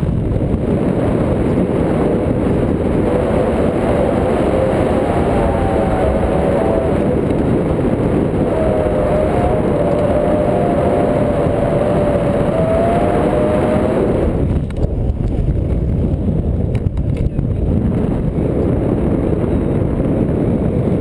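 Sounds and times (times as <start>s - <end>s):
wind rushing over microphone: 0.0s - 21.0s
wavering whistle: 3.0s - 7.3s.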